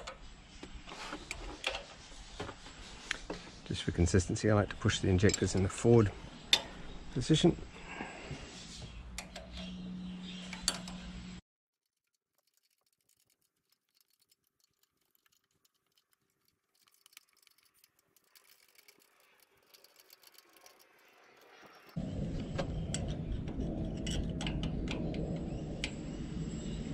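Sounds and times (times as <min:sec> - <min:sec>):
low hum: 0:21.7 - 0:26.9.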